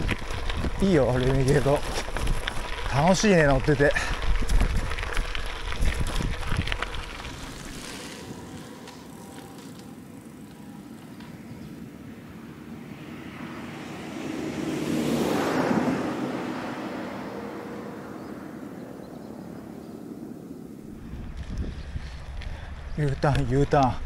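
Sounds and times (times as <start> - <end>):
wind on microphone: 0.0 - 2.7, 3.6 - 8.7, 20.8 - 23.0
bike tyres rolling over gravel: 0.0 - 13.8, 14.8 - 24.0
steady outdoor hiss: 5.1 - 14.7.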